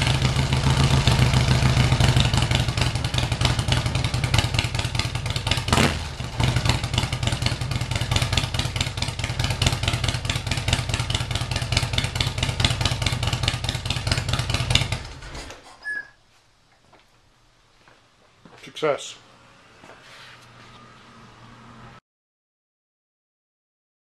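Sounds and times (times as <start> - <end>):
motorcycle engine idling: 0.0 - 15.2.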